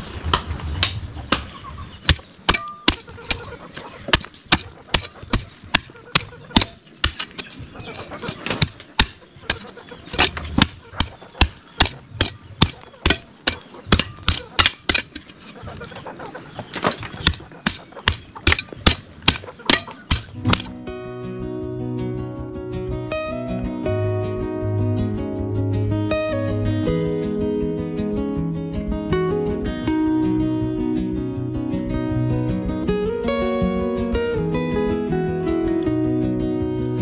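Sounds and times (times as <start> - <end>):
high-pitched insect drone: 0.0 - 24.4
hoe chopping into soil: 0.3 - 15.6, 16.7 - 20.8.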